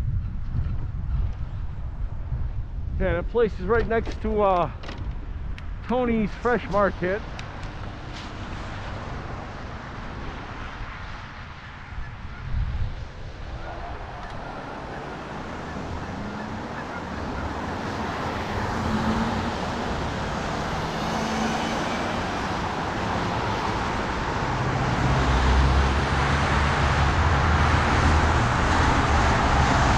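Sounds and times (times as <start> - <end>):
traffic driving past: 6.3 - 29.9
vehicle passing close by: 7.7 - 29.9.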